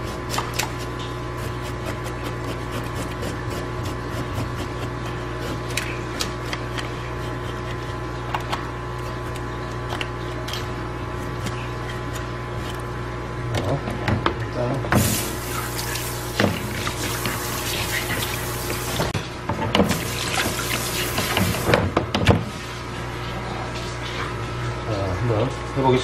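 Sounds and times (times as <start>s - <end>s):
knife scraping fish scales: 0.0s - 12.9s.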